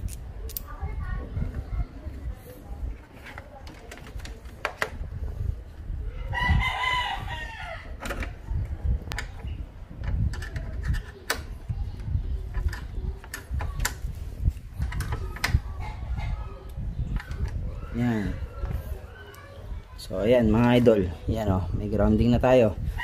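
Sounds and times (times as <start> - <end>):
metal terminal and bolt clicking: 0.0 - 0.7
rooster crowing: 6.3 - 8.0.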